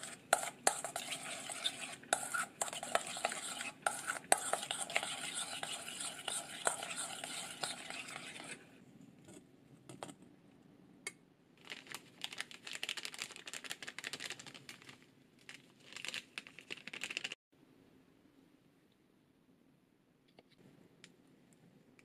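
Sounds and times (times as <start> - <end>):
spoon scraping steel bowl: 0.0 - 8.6
plastic bag crinkling: 11.6 - 17.4.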